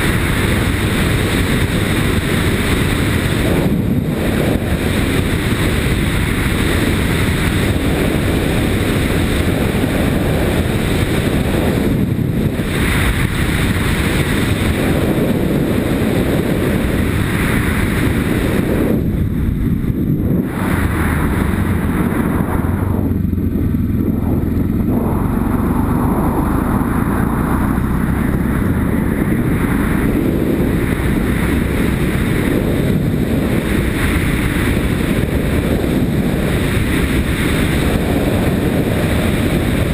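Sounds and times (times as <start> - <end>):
motorcycle engine and tyre rumble: 0.0 - 39.9
wind noise on microphone: 0.0 - 39.9.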